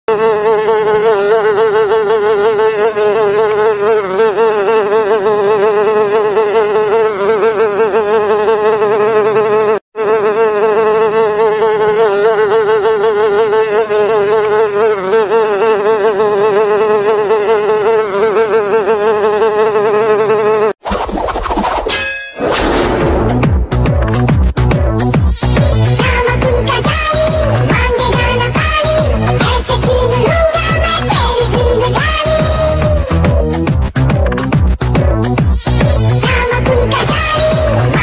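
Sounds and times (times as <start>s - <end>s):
housefly buzzing: 0.1s - 20.8s, 23.3s - 38.0s.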